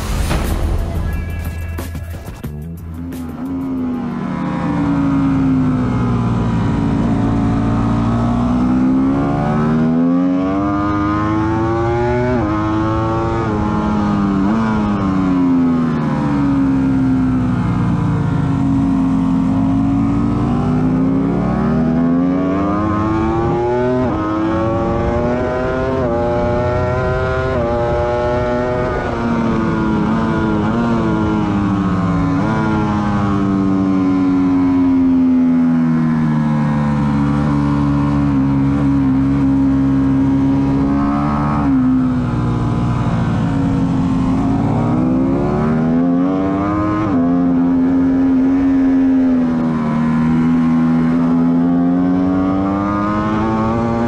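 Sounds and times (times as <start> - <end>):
wind rush: 0.0 - 2.5
motorcycle engine accelerating: 0.0 - 54.0.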